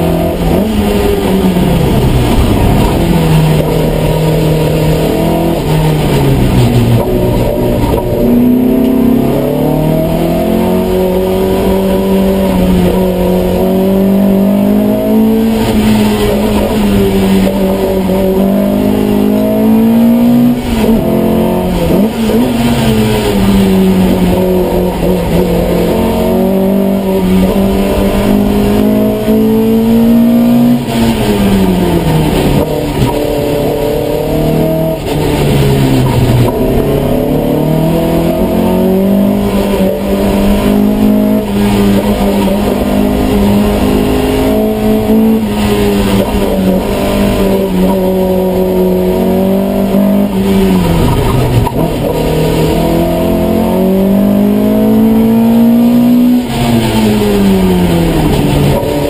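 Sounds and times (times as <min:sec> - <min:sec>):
race car engine at high revs: 0:00.0 - 0:59.0.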